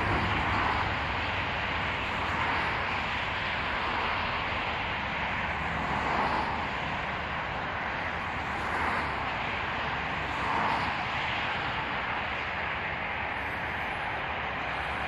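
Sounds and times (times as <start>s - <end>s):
distant jet engine hiss: 0.0s - 15.0s.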